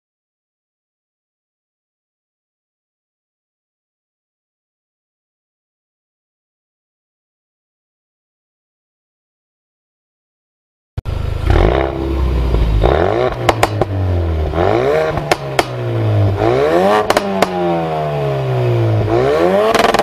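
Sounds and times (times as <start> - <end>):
car engine revving: 11.1 - 20.0
sharp exhaust pops: 11.4 - 17.8, 19.7 - 20.0.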